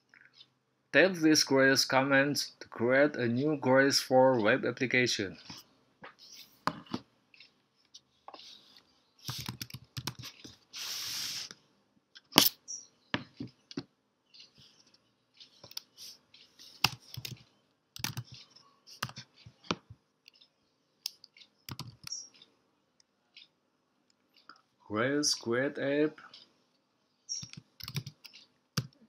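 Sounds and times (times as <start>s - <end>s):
short hiss: 10.7s - 11.5s.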